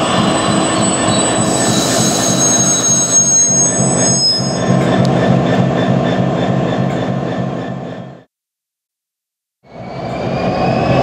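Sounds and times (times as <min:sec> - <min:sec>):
brakes squealing: 0:00.0 - 0:06.2
diesel locomotive engine rumble: 0:00.0 - 0:08.3.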